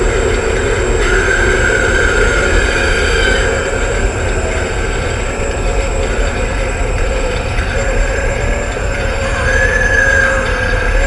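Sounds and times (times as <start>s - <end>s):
noisy rumble: 0.0s - 11.0s.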